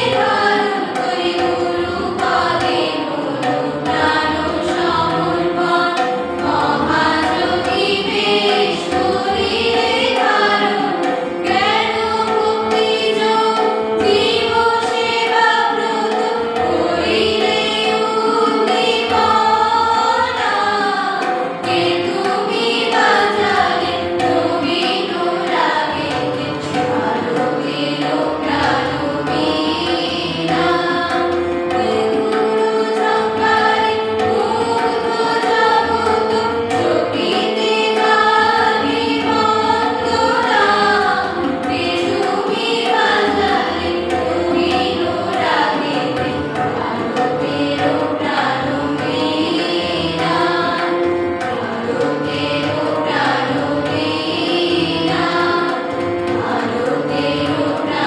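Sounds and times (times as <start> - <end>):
choir of young voices singing: 0.0 - 58.0
tabla drums: 0.0 - 58.0.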